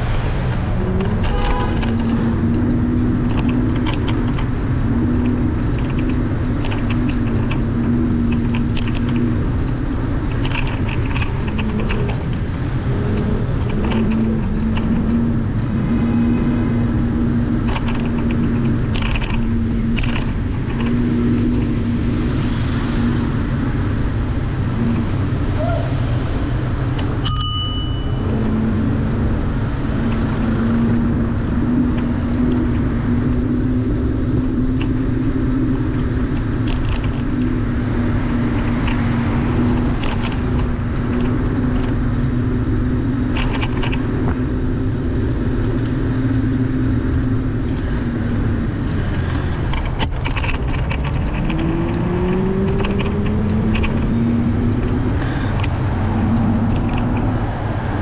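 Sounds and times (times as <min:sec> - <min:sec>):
street traffic rumble: 0:00.0 - 0:58.0
bell-like ring: 0:27.2 - 0:28.2.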